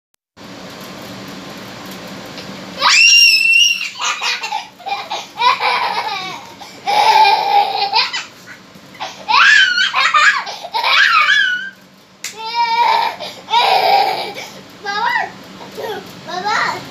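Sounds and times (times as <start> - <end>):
toddler shrieking: 2.8 - 8.3, 9.0 - 11.8, 12.4 - 14.4
toddler squealing and laughing: 2.8 - 8.4, 9.0 - 11.8.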